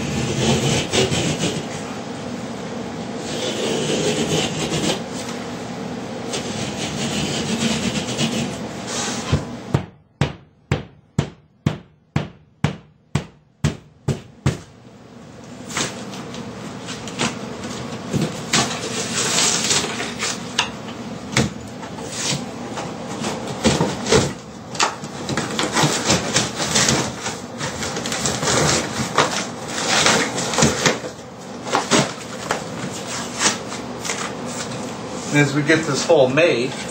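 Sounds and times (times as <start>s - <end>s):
sharp strokes on drywall: 0.0s - 1.9s, 3.2s - 5.1s, 6.3s - 9.5s
drywall scraping and tearing: 0.0s - 2.0s, 3.2s - 5.3s, 6.3s - 9.5s, 15.6s - 20.5s, 21.9s - 35.5s.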